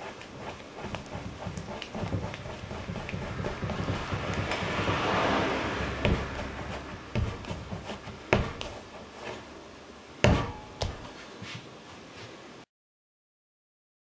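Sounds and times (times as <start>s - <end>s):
clay rubbing and pressing: 0.0s - 12.4s
dull thumps on wood: 0.3s - 9.4s, 10.2s - 11.2s.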